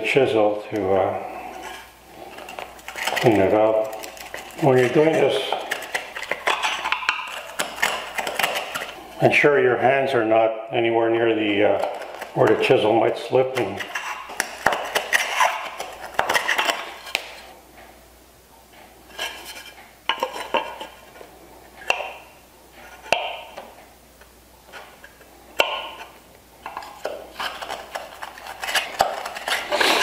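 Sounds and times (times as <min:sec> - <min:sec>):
chisel scraping wood: 0:01.2 - 0:09.0, 0:13.5 - 0:17.2, 0:22.8 - 0:23.6, 0:24.7 - 0:30.0.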